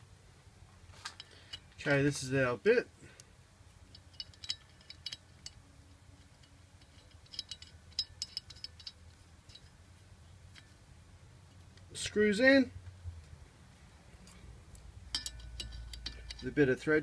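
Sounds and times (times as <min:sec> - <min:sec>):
metallic clicks of pipe fitting: 0:01.0 - 0:02.3, 0:03.1 - 0:09.8, 0:14.2 - 0:16.9.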